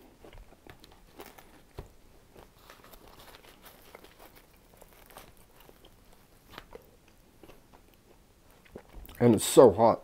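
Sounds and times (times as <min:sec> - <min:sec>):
faint crinkling of paper: 0:00.7 - 0:07.2.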